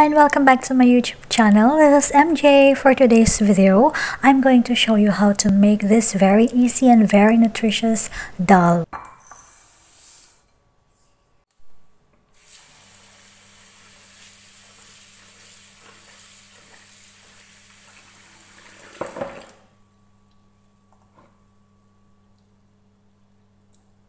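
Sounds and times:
tap water running into bowl: 12.5s - 19.6s.

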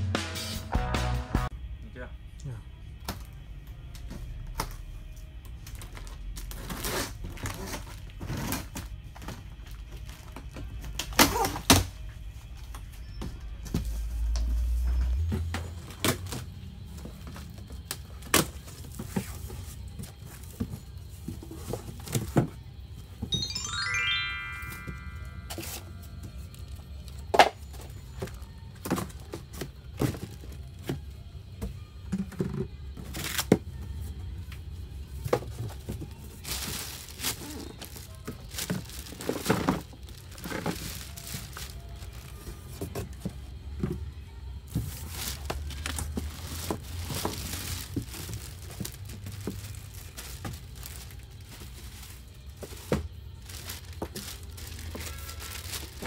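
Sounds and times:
plastic wrapping crinkling: 36.2s - 42.7s, 44.8s - 56.0s.

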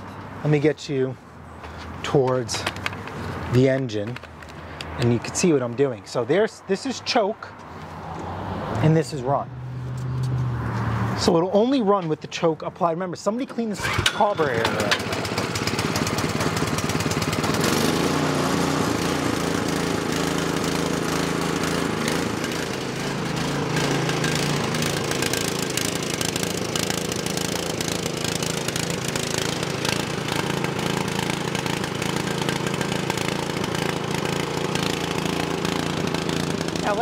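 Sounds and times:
snowblower engine running: 13.5s - 37.0s.

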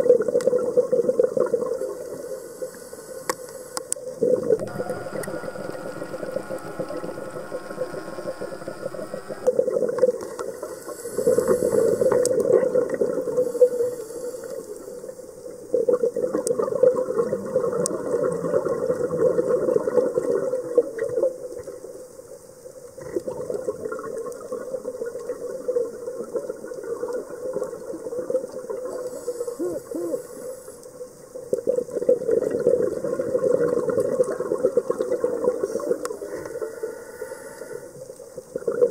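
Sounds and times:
bubbling exhaled air underwater: 31.5s - 38.9s.

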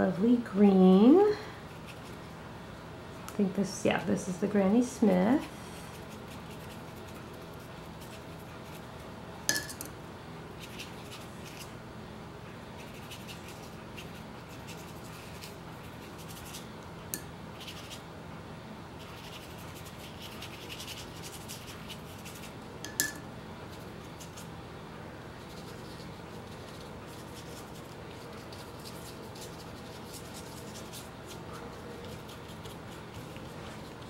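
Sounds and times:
room hum: 0.0s - 34.0s
paintbrush scratching on paper: 5.4s - 8.8s, 12.8s - 16.6s, 25.4s - 34.0s.

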